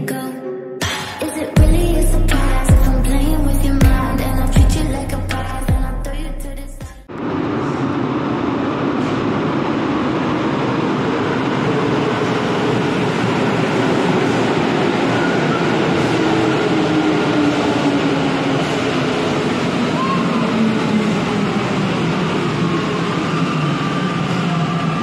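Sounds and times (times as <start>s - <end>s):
train rolling rumble: 7.0s - 25.0s.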